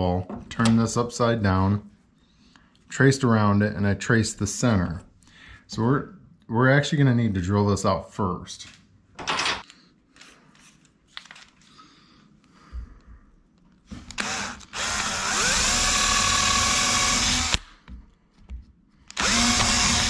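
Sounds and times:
power drill drilling into wood: 14.2 - 17.6, 19.2 - 20.0.

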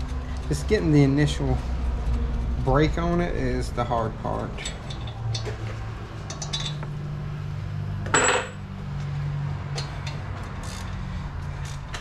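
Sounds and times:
ringing metal clank: 8.1 - 8.6.

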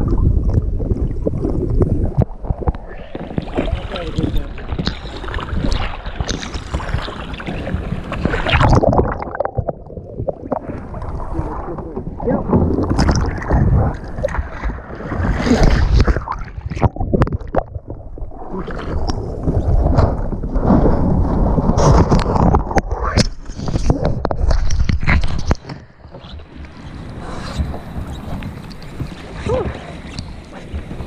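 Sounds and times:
water splashing against kayaks: 0.0 - 31.0
knocks and rubbing on kayak hull: 27.2 - 31.0.

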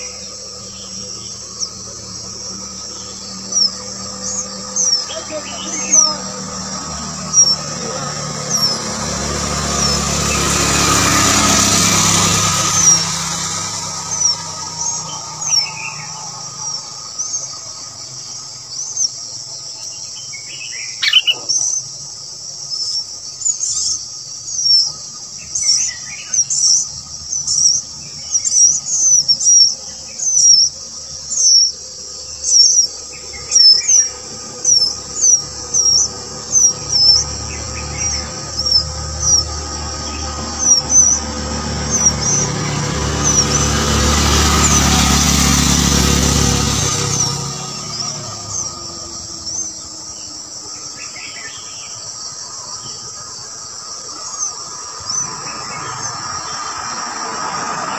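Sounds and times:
insect-like drone: 0.0 - 57.9
high thin chirps: 21.0 - 21.6
rush of noise: 32.0 - 57.9.

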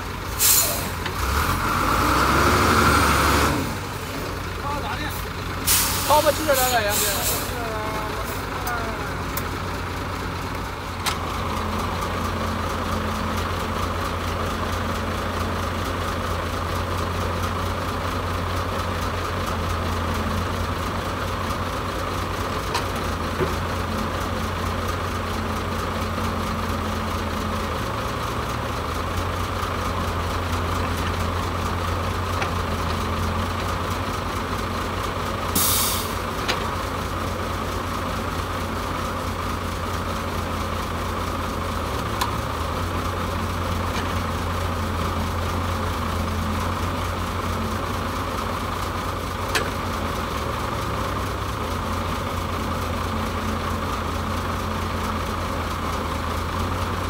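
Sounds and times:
diesel engines droning: 0.0 - 57.0
air hiss burst: 0.4 - 1.0, 5.7 - 6.2.

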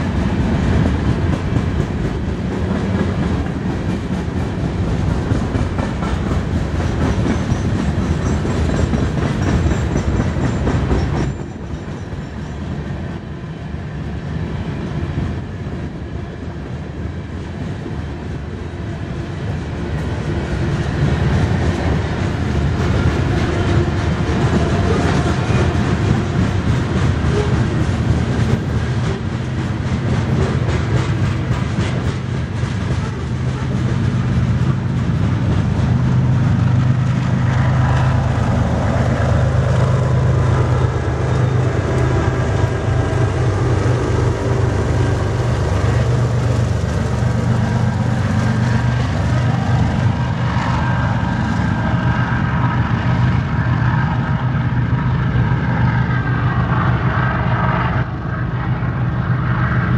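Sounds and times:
rapid clickety-clack: 0.0 - 12.6, 20.0 - 55.9
train wheels rumbling on rails: 0.0 - 59.9.

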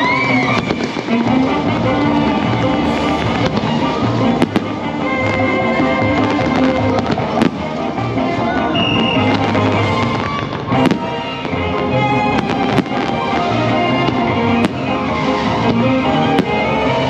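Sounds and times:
fireworks bursting: 0.0 - 17.0
show music: 0.0 - 17.0
sharp firework cracks: 2.4 - 7.9.

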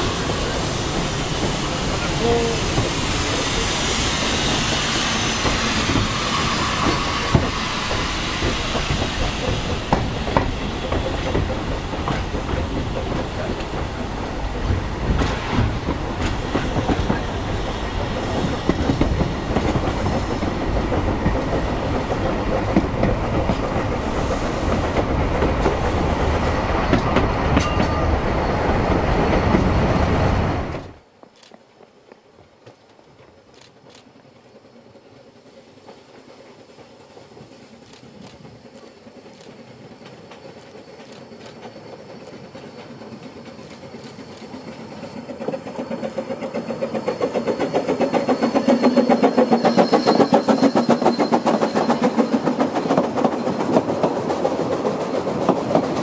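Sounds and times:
train carriage rumbling: 0.0 - 56.0
wheels clicking over rail joints: 30.7 - 56.0.

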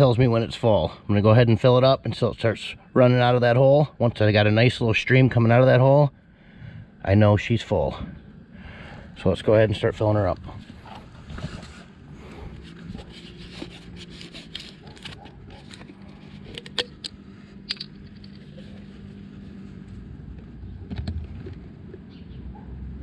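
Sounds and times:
faint low hum: 0.0 - 23.0
plastic bottle scraping: 10.6 - 17.0.

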